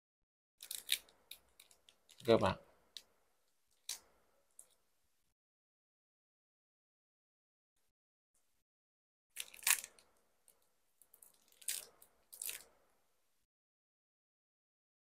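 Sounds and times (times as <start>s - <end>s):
plastic packet crinkling and tearing: 0.6s - 2.3s, 9.4s - 10.1s, 11.1s - 12.8s.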